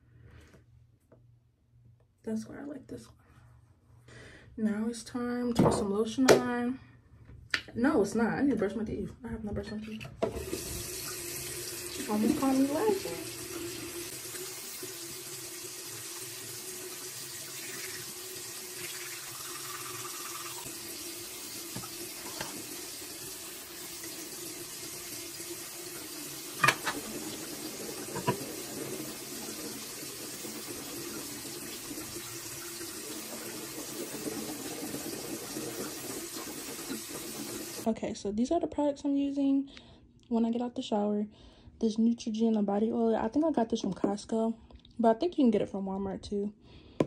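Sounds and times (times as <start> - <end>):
tap running into sink: 21.6 - 22.8, 26.5 - 32.0.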